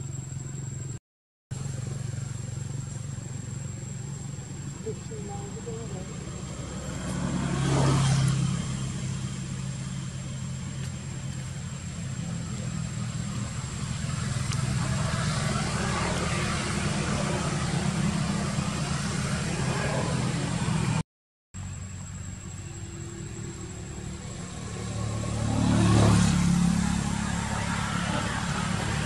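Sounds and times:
motor engine humming: 0:00.0 - 0:21.0.

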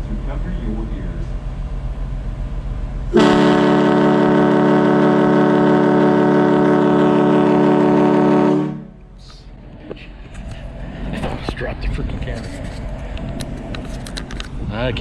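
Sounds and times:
loud boat horn blast: 0:03.1 - 0:09.0.

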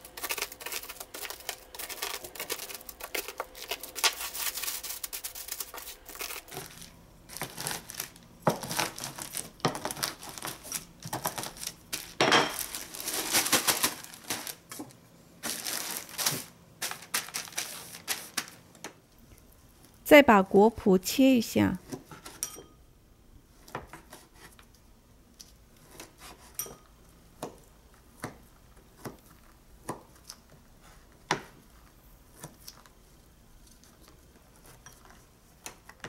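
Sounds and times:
plastic bag crinkling: 0:00.0 - 0:18.6
nuts crackling under rolling pin: 0:00.0 - 0:18.9.

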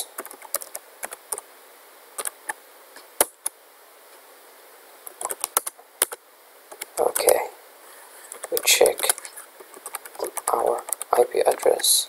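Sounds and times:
computer keyboard clicks: 0:00.1 - 0:01.4, 0:02.2 - 0:02.6, 0:05.1 - 0:07.3, 0:08.3 - 0:11.8.

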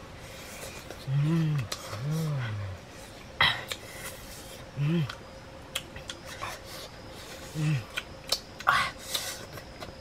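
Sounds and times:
man humming: 0:01.0 - 0:02.8, 0:04.7 - 0:05.2, 0:07.5 - 0:08.0.

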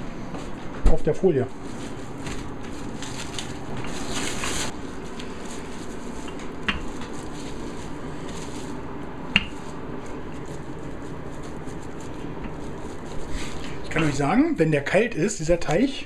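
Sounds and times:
cling film crinkling: 0:01.5 - 0:14.4
rolling pin rolling dough: 0:03.6 - 0:14.0.

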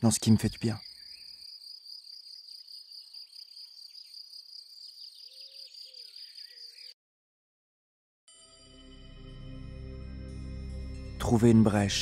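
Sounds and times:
crickets chirping: 0:00.2 - 0:06.9
faint bird chirps: 0:00.3 - 0:07.0.

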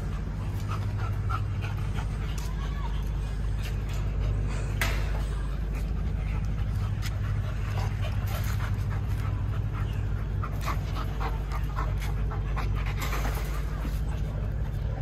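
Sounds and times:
dog panting: 0:00.0 - 0:15.0
steady low rumble: 0:00.0 - 0:15.0.

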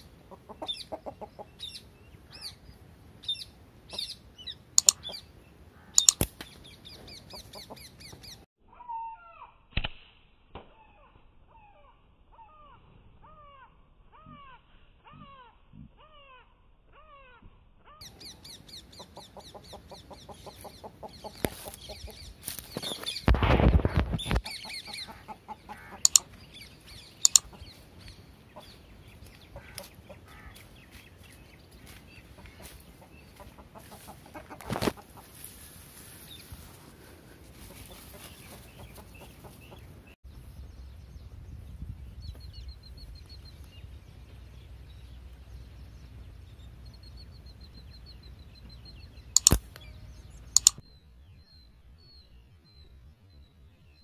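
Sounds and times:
birds calling: 0:00.0 - 0:09.6, 0:10.8 - 0:54.0
sharp clicks: 0:04.8 - 0:05.2, 0:06.0 - 0:06.6, 0:26.0 - 0:26.4, 0:27.2 - 0:27.6, 0:49.3 - 0:49.9, 0:50.5 - 0:50.8.

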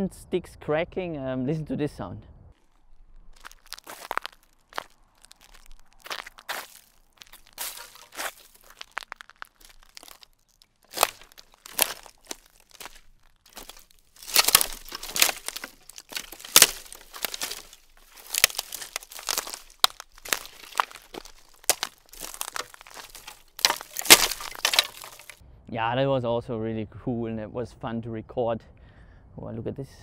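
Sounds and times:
twigs cracking underfoot: 0:02.6 - 0:25.4.

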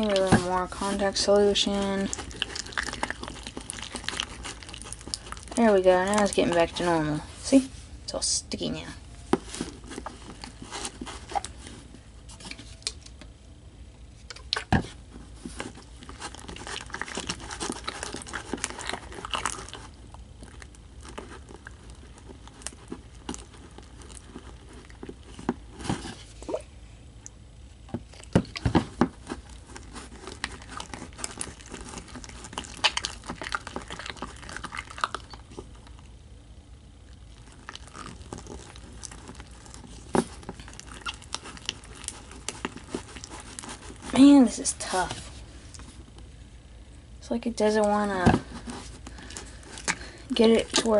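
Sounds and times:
slime wet clicks and crackles: 0:16.2 - 0:25.2, 0:30.2 - 0:36.1, 0:37.1 - 0:43.8.

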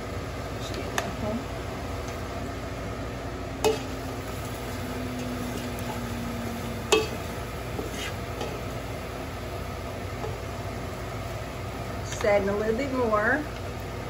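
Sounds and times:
roux sizzling in pot: 0:00.0 - 0:14.0
spoon knocking against pot: 0:06.9 - 0:07.2
spoon stirring in pot: 0:06.9 - 0:08.8.

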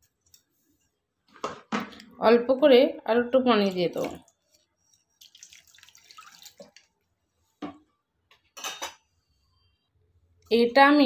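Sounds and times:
batter splashing in bowl: 0:05.1 - 0:06.9.

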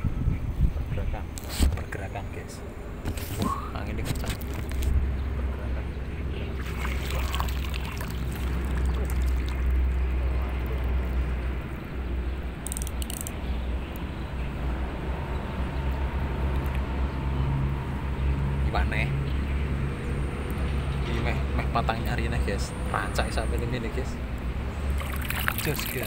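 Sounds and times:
wind buffeting microphone: 0:00.0 - 0:01.9
water sloshing: 0:06.5 - 0:10.9, 0:24.8 - 0:26.0.

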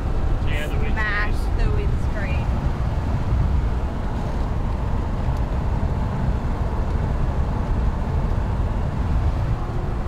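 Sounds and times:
vehicle engine tyre and wind rumble: 0:00.0 - 0:10.0.

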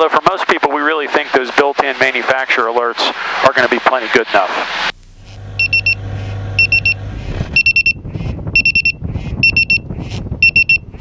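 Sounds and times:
high-pitched alarm beeps: 0:05.6 - 0:06.0, 0:06.6 - 0:07.0, 0:07.6 - 0:08.0, 0:08.6 - 0:10.9.

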